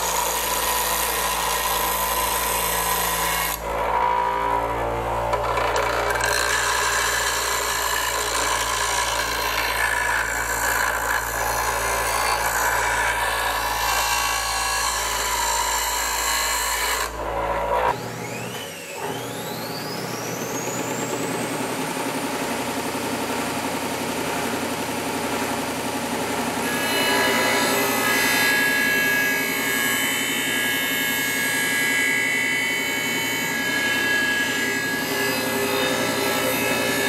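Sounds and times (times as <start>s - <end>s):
bench grinder grinding steel: 0.0s - 21.8s, 25.2s - 37.0s
machine motor whine: 17.0s - 26.4s.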